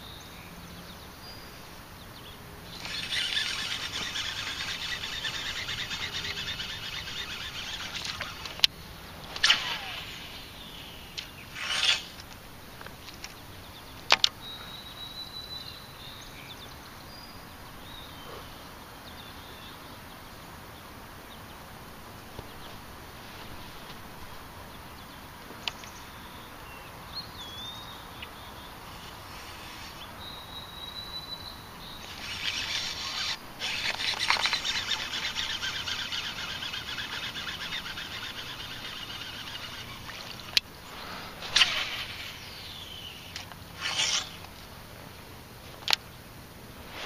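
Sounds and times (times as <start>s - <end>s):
bird chirps: 0.0s - 12.2s, 13.2s - 20.0s, 24.7s - 44.4s
high buzzing hiss: 0.0s - 13.6s, 20.2s - 47.0s
sharp clicks: 2.8s - 8.7s, 32.0s - 40.7s.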